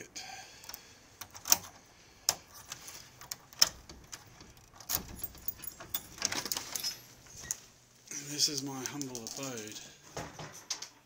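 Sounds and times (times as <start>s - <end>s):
key turning in lock clicks: 0.6s - 1.7s, 2.3s - 6.7s
keys jangling: 2.5s - 7.3s.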